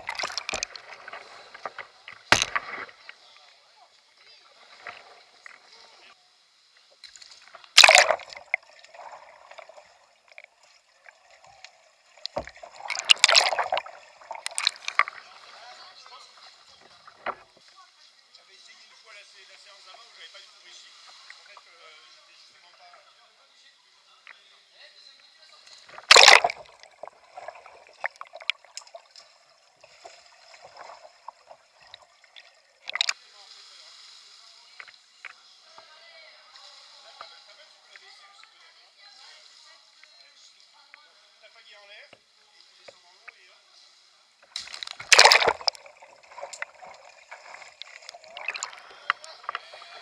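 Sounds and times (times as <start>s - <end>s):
heavy splashing: 0.0s - 3.0s, 7.8s - 10.0s, 12.2s - 15.9s, 26.0s - 28.5s, 44.7s - 50.0s
kayak splashing in water: 0.0s - 3.2s, 7.3s - 17.6s, 25.8s - 33.5s, 44.5s - 50.0s
underwater clicks and gurgles: 0.0s - 3.4s, 4.1s - 6.1s, 6.8s - 17.8s, 25.6s - 33.3s, 44.4s - 50.0s
quiet water noise: 0.0s - 50.0s
muffled underwater bubbling: 7.7s - 15.5s, 26.0s - 29.1s, 45.0s - 50.0s.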